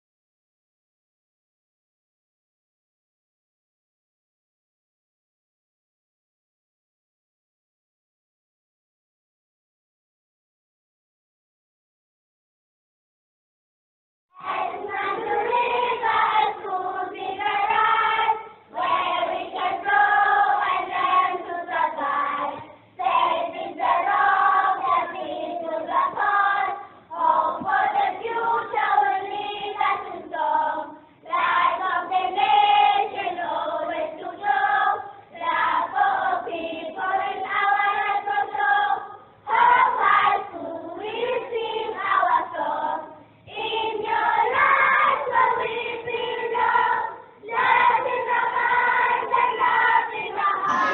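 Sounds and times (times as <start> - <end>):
choir singing: 14.4 - 50.9.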